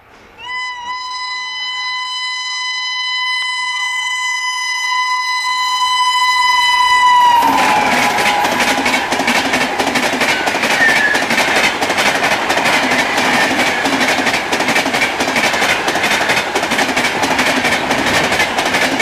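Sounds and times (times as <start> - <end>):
locomotive horn blast: 0.4 - 11.7
rush and clatter of passing coaches: 7.5 - 19.0.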